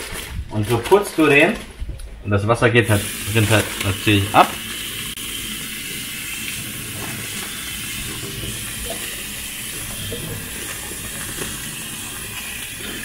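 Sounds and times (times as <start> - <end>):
tap water running into plastic bag: 2.8 - 13.0.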